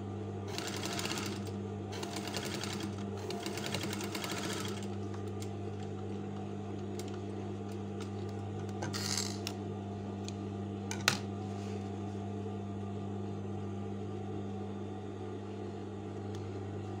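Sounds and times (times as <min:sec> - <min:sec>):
sewing machine motor humming: 0:00.5 - 0:09.5.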